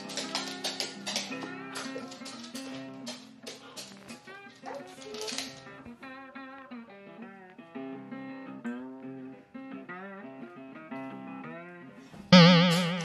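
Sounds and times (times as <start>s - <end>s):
plucked guitar music: 12.3s - 13.0s.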